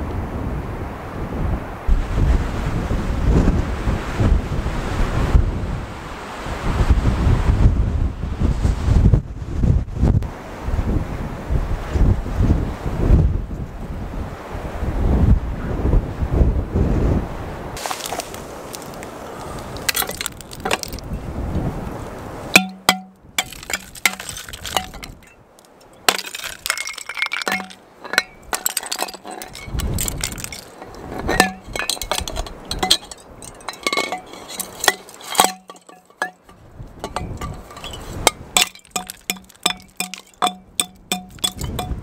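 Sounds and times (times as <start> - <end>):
wind noise on microphone: 0.0 - 25.5, 26.3 - 42.0
sharp clinking drips: 17.8 - 21.1, 22.6 - 42.0
water trickling into bottle: 17.8 - 21.1, 22.6 - 42.0.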